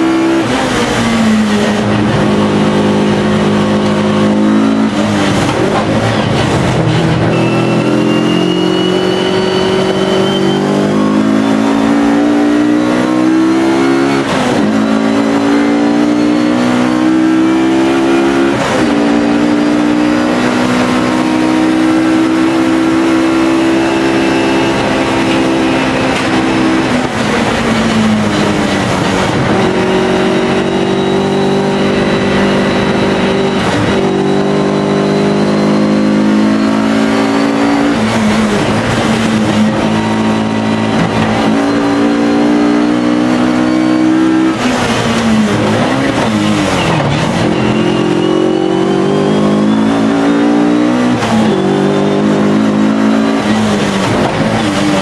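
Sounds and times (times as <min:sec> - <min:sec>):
racing car engine running hard: 0:00.0 - 0:55.0.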